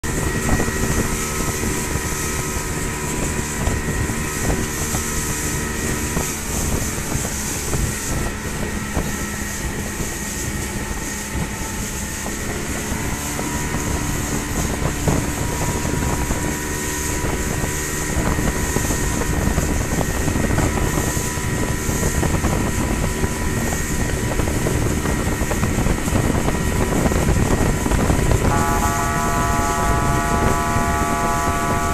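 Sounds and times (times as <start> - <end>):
speedboat engine running: 0.0 - 31.9
water rushing past hull: 0.0 - 31.9
wind buffeting microphone: 0.0 - 31.9.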